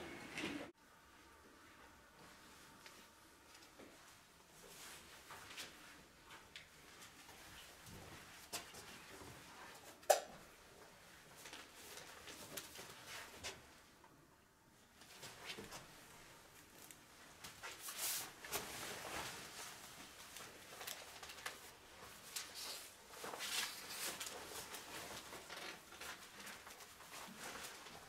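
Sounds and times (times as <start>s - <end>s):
paper rustling: 17.6s - 28.0s.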